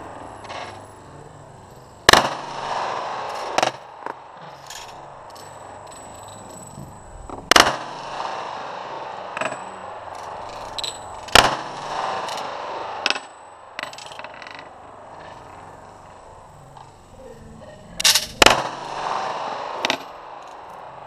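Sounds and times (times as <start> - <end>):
quiet sharp cracks and clinks: 0.0 - 21.0
pistol shots with echo: 2.0 - 5.8, 7.5 - 17.1, 17.9 - 21.0.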